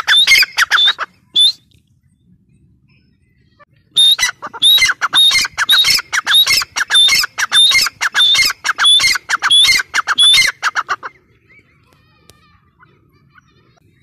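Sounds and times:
bird calling harsh ringing notes: 0.0s - 1.6s, 2.9s - 11.8s.

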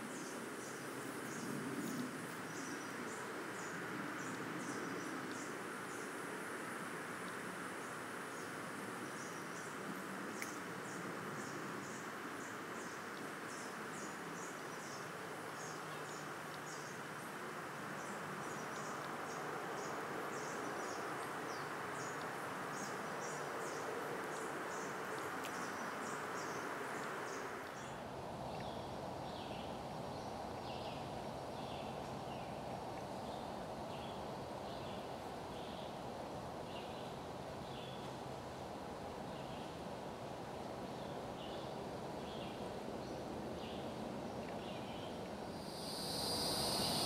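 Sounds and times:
steady hiss: 45.4s - 47.0s
insects chirping: 45.5s - 47.0s.

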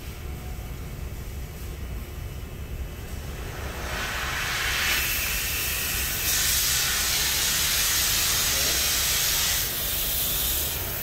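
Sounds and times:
steady hiss: 3.1s - 11.0s.

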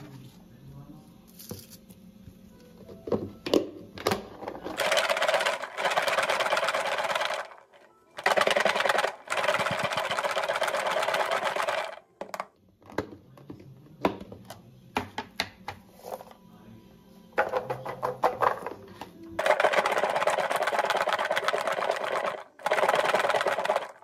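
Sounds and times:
garlic rattling in shaken container: 4.8s - 7.6s, 8.2s - 12.0s, 19.4s - 24.0s.

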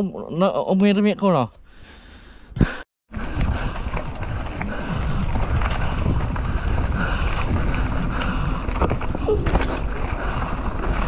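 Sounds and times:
bike tyres rumbling on dirt: 3.2s - 11.0s
wind on microphone: 3.2s - 11.0s.

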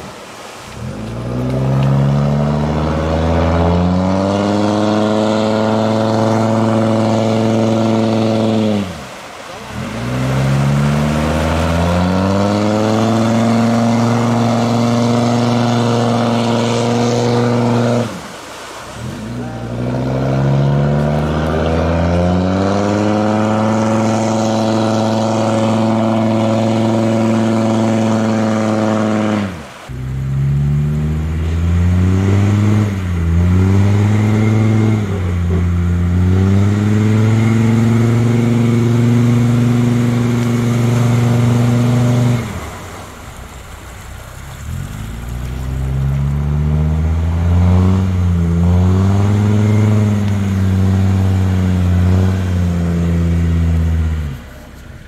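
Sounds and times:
diesel engine revving hard: 0.0s - 54.8s.

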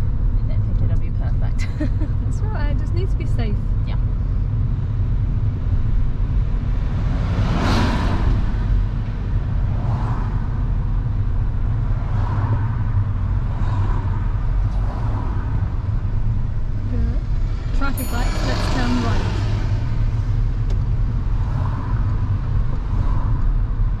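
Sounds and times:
car road and engine rumble: 0.0s - 24.0s
vehicle whooshing past: 6.6s - 11.2s, 11.8s - 23.6s.

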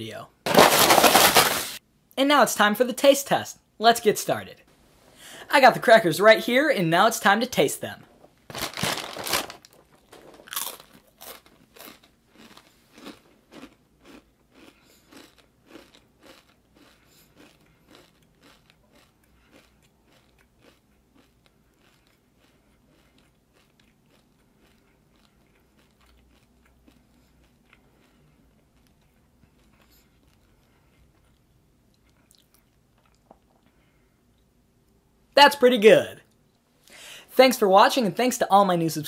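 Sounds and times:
crackers crunching while chewing: 0.5s - 1.8s, 8.5s - 34.5s.

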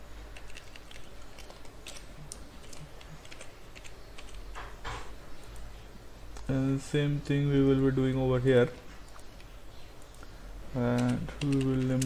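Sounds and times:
steady low hum: 0.0s - 12.0s
computer keyboard typing: 0.3s - 4.7s, 10.8s - 12.0s.

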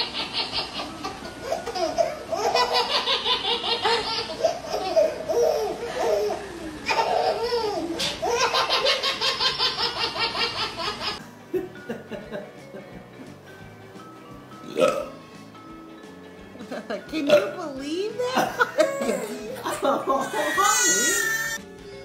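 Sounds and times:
baby squealing: 0.0s - 8.9s, 18.8s - 21.6s
baby laughing: 0.0s - 11.2s, 18.3s - 21.6s.

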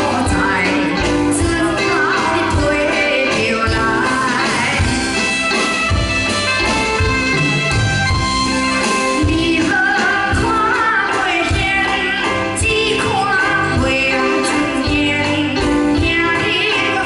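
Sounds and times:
woman singing into microphone: 0.0s - 5.2s, 9.1s - 17.0s
steady drum beat: 0.0s - 16.4s
live band playing: 0.0s - 17.0s.

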